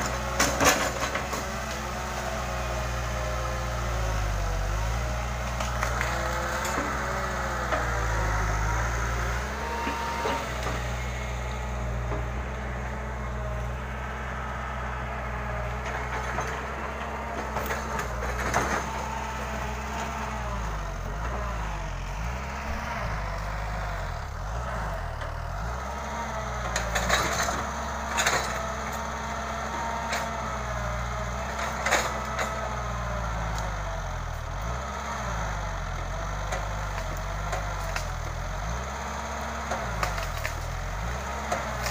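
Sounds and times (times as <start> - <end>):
excavator diesel engine running: 0.0 - 41.9.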